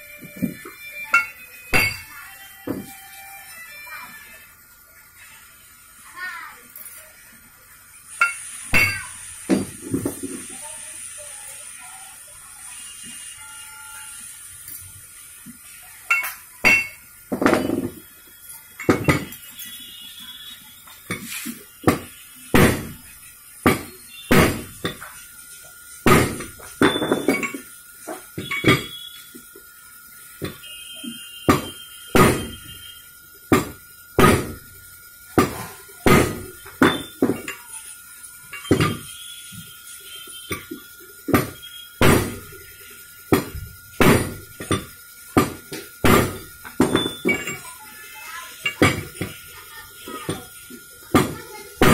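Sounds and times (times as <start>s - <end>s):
steel tool striking metal: 0.5s - 2.9s, 8.2s - 9.6s, 16.1s - 18.0s, 18.8s - 19.5s, 21.1s - 25.2s, 26.1s - 29.0s, 31.5s - 32.8s, 33.5s - 34.7s, 35.4s - 37.8s, 38.5s - 39.2s, 40.5s - 42.7s, 43.3s - 47.7s, 51.2s - 51.9s.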